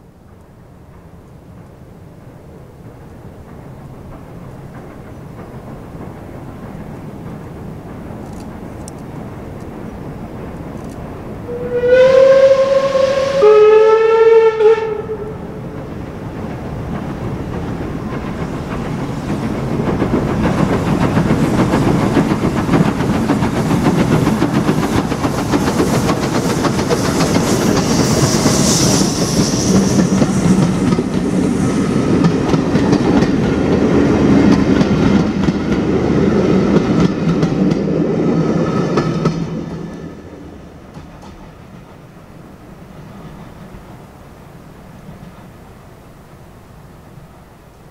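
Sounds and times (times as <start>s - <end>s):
train wheel clatter: 0.0s - 13.4s, 14.6s - 44.2s
steam locomotive exhaust: 0.0s - 46.3s
steam whistle blasts: 11.4s - 15.6s.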